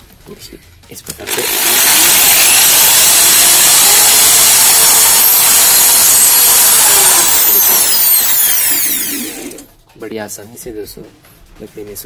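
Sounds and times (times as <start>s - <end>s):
electric drill boring wood: 1.2s - 9.7s.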